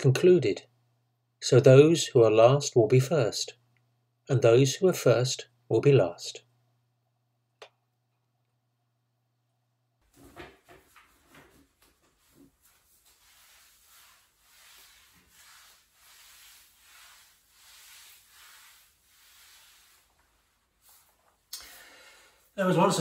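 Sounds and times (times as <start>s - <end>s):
mop swishing on floor: 10.0s - 23.0s.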